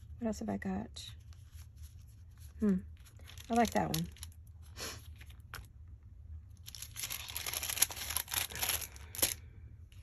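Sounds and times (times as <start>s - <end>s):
paper rustling and crinkling: 1.1s - 5.7s, 6.6s - 9.4s.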